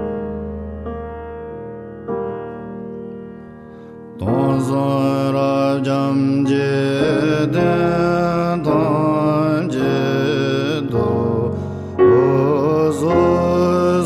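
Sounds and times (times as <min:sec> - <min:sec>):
man chanting in deep voice: 0:04.2 - 0:14.0.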